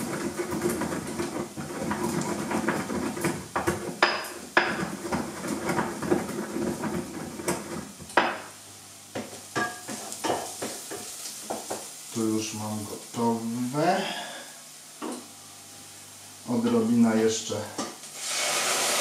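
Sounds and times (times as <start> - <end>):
pestle grinding in mortar: 0.0 - 7.9.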